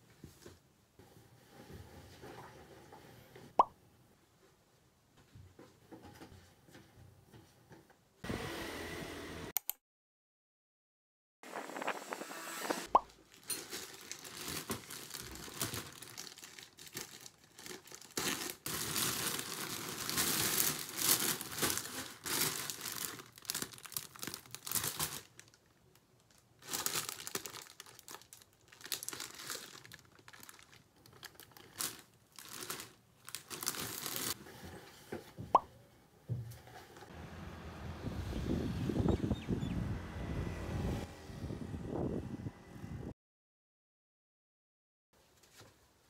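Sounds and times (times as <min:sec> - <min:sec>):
plastic packaging crinkling: 0:13.1 - 0:34.4.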